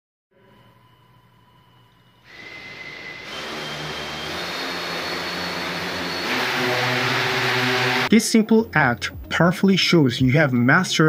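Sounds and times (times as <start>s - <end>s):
high whine: 0.4s - 8.2s
drone propellers whirring: 2.3s - 8.1s.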